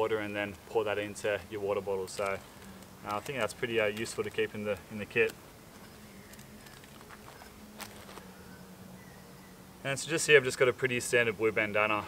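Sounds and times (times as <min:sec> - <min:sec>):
gear rustling and tapping: 0:01.8 - 0:08.2.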